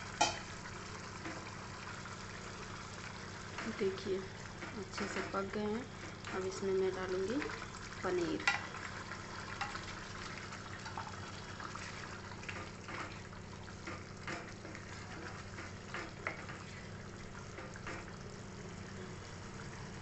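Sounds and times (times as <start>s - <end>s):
spatula scraping and knocking pan: 0.2s - 0.5s, 12.4s - 16.8s
spatula stirring thick curry: 11.7s - 18.3s.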